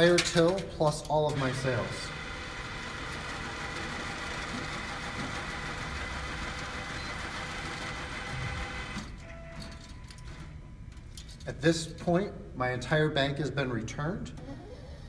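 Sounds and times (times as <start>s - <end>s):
cash machine counting banknotes: 1.2s - 10.6s.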